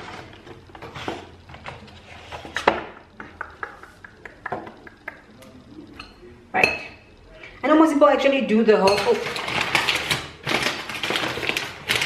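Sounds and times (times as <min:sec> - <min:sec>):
kitchen utensils clattering: 0:08.7 - 0:12.0.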